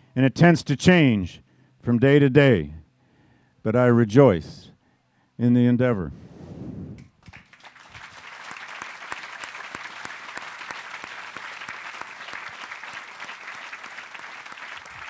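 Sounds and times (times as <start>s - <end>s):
audience applauding: 7.2s - 15.0s.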